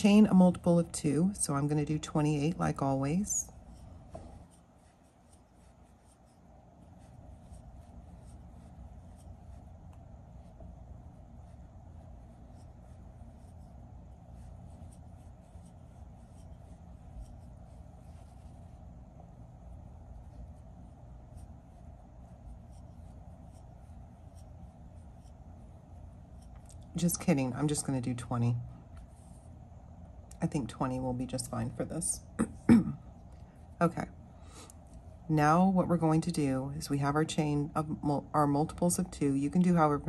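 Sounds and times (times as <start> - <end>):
crochet hook rubbing and ticking: 0.0 - 29.4
low steady hum: 0.0 - 40.0
faint irregular ticks: 21.2 - 27.9.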